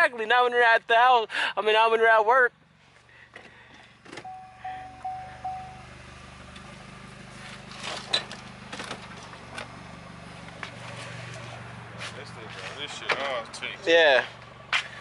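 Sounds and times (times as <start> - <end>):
low engine hum: 2.6 - 15.0
car warning chime beeping: 4.2 - 6.4.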